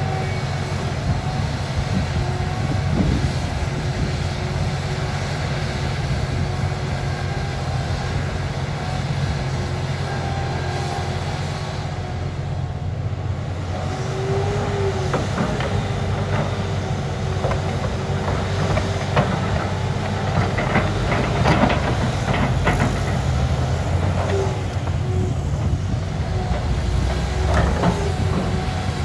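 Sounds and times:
hydraulic whine: 0.0 - 12.9, 13.6 - 29.0
excavator diesel engine: 0.0 - 29.0.

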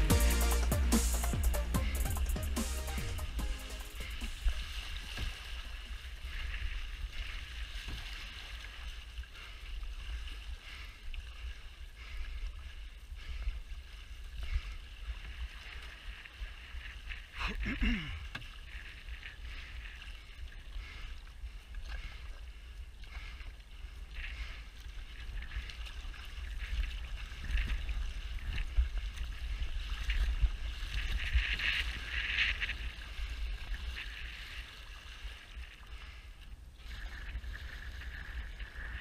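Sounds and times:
water splashing along canoe hull: 0.0 - 39.0
wind rumble on microphone: 25.2 - 35.5.

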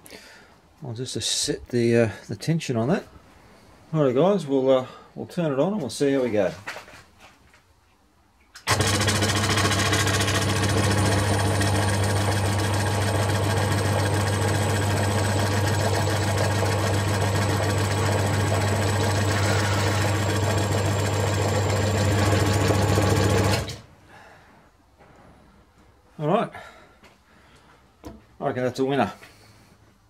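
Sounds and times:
bandsaw motor humming: 8.7 - 23.8.

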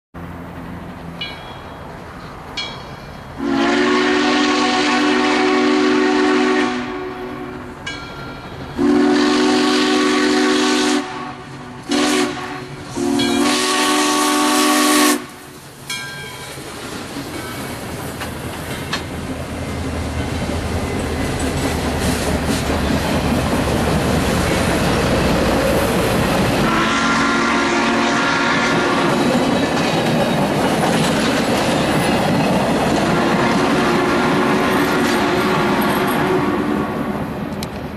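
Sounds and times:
train running noise: 0.2 - 37.9
steam locomotive chime whistle: 2.6 - 16.6, 26.6 - 29.4, 33.1 - 37.0
wheels clicking over rail joints: 15.5 - 26.7, 28.7 - 33.8.

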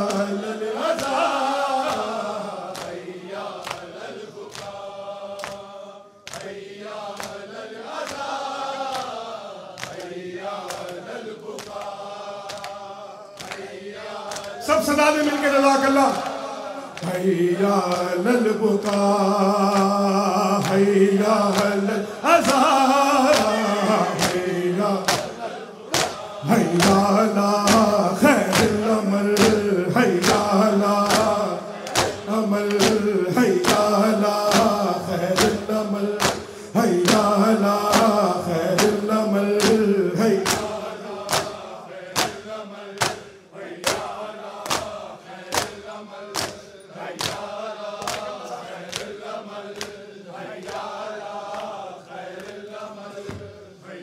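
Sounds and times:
men chanting in chorus: 0.0 - 54.0
hands slapping chests: 1.8 - 4.8, 5.4 - 7.4, 8.0 - 8.3, 8.9 - 14.6, 20.6 - 21.8, 22.4 - 49.2, 49.8 - 50.0.

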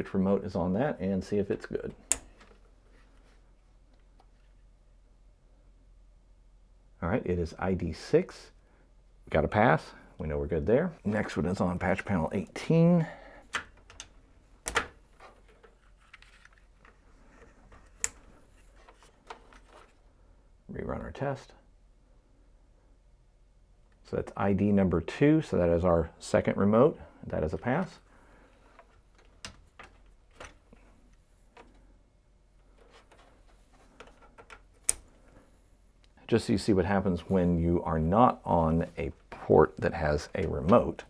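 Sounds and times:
cable rustling: 13.4 - 20.1, 27.4 - 41.0.

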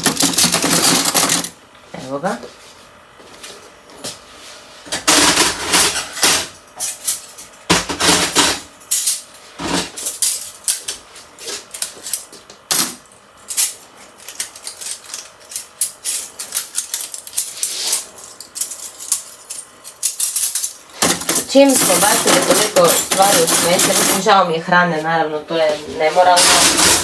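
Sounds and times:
metal cutlery clinking: 13.5 - 24.2
utensils scraping: 14.1 - 20.8, 21.4 - 24.4, 26.0 - 27.0.

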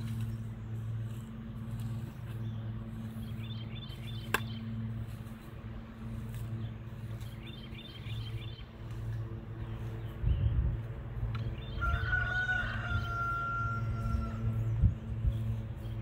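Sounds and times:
bird chirping: 0.0 - 12.1
low mechanical hum: 0.0 - 16.0.

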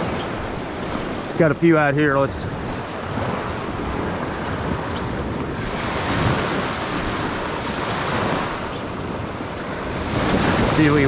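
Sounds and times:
surf waves on sandy beach: 0.0 - 11.0
wind noise on microphone: 2.2 - 11.0.

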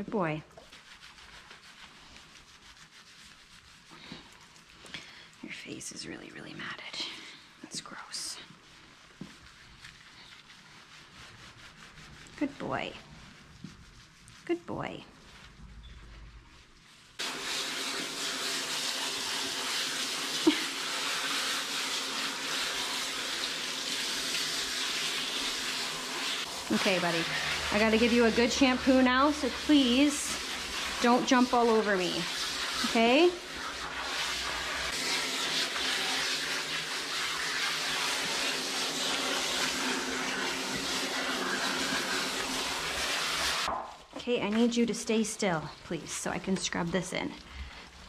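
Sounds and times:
water spraying from hose nozzle: 17.2 - 43.7.

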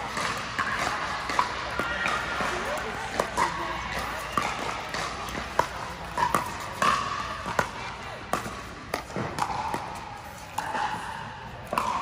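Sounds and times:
paddles hitting plastic ball: 0.0 - 12.0.

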